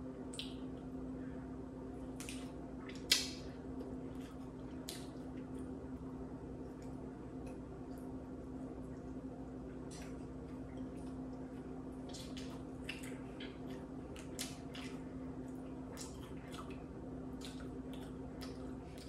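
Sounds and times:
steady low hum: 0:00.0 - 0:19.0
person chewing wetly: 0:02.1 - 0:05.8, 0:09.8 - 0:19.0.

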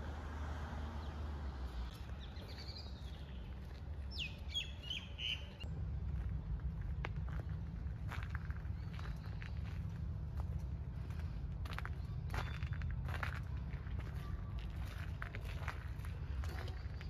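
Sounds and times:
birds chirping: 0:00.8 - 0:05.7, 0:07.3 - 0:15.0
low rumble: 0:01.4 - 0:17.0.

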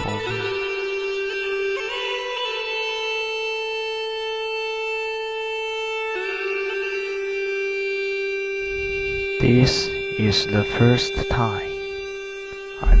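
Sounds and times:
slow sustained music: 0:00.0 - 0:13.0.

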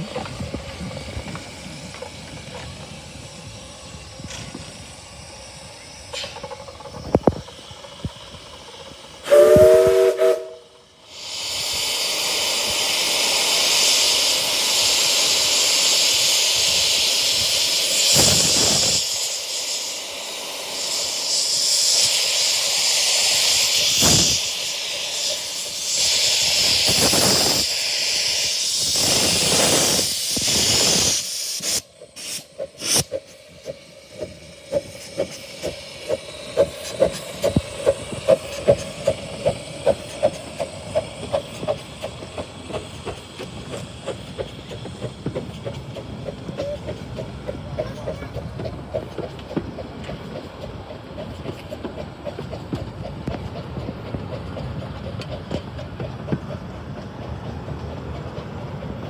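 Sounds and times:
steam hissing: 0:00.0 - 0:59.0
steam locomotive chuffing: 0:00.0 - 0:59.0
steam whistle chord: 0:09.2 - 0:10.8.

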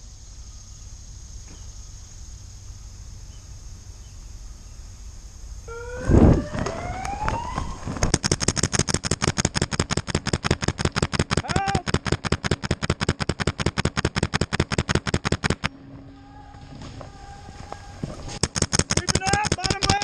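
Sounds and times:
steady high hiss: 0:00.0 - 0:20.0
rising siren-like tone: 0:05.6 - 0:08.1, 0:15.7 - 0:18.4
rapid paintball marker fire: 0:06.6 - 0:15.7, 0:18.3 - 0:20.0.

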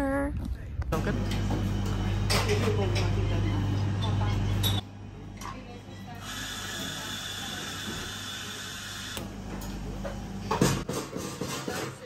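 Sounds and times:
cups and dishes clinking: 0:01.9 - 0:06.2
espresso machine hissing: 0:06.2 - 0:10.4.

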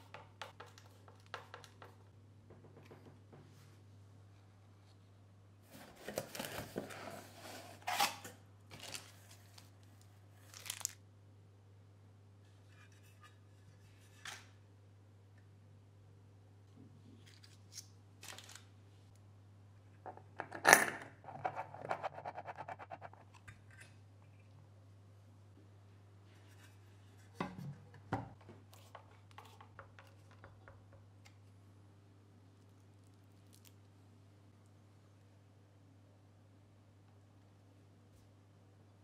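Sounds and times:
cardboard and plastic rustling: 0:05.6 - 0:11.0.

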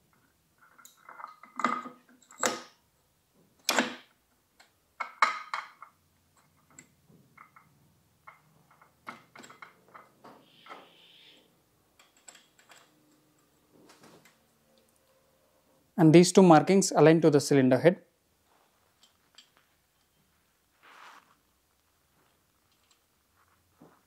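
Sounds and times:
metal clicks and knocks: 0:00.1 - 0:02.8, 0:03.6 - 0:10.3, 0:11.9 - 0:14.4.

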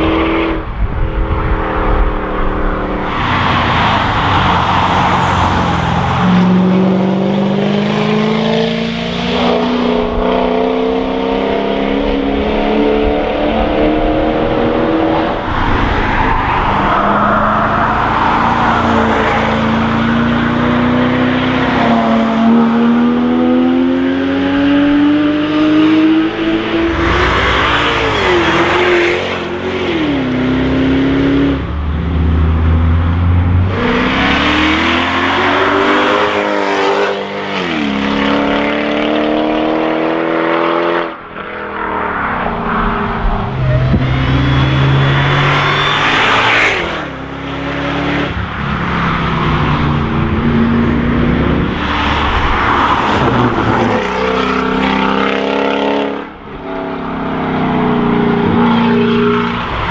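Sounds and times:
race car engines accelerating past: 0:00.0 - 0:59.9.

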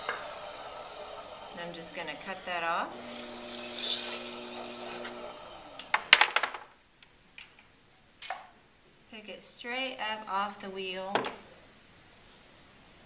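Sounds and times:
potter's wheel motor hum: 0:00.0 - 0:06.1.

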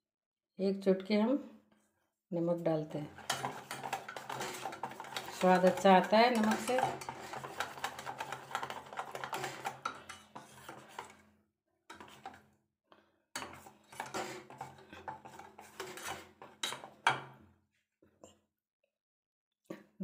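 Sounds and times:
whisk scraping metal bowl: 0:03.0 - 0:11.3, 0:11.9 - 0:12.4, 0:13.4 - 0:17.2.

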